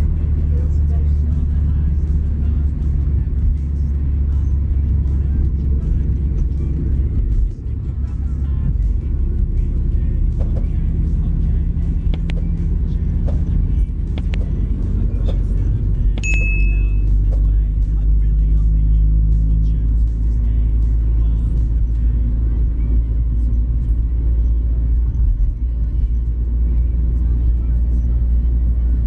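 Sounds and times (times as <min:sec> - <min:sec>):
car road and engine rumble: 0:00.0 - 0:29.0
short high ding: 0:16.2 - 0:17.2.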